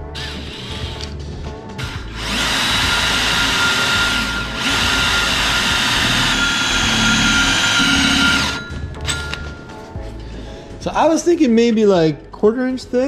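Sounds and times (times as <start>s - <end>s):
cordless drill boring into metal: 1.8s - 8.7s.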